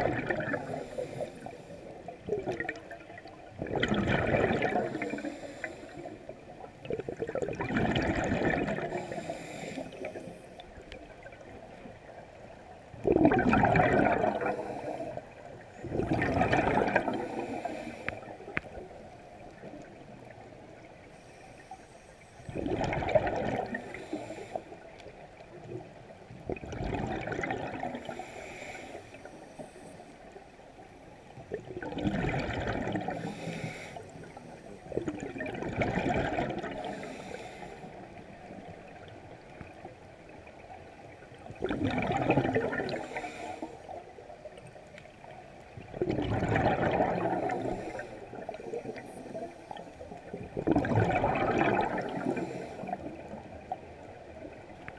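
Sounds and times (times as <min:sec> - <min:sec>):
exhaled bubbles gurgling: 0:00.0 - 0:21.8, 0:22.4 - 0:30.6, 0:31.2 - 0:54.9
regulator breathing underwater: 0:00.1 - 0:02.1, 0:04.2 - 0:06.3, 0:08.5 - 0:10.6, 0:14.0 - 0:15.4, 0:16.0 - 0:18.6, 0:21.1 - 0:22.9, 0:23.6 - 0:24.8, 0:27.8 - 0:30.2, 0:32.7 - 0:34.8, 0:36.5 - 0:38.1, 0:42.6 - 0:44.0, 0:46.7 - 0:49.9, 0:51.9 - 0:53.3.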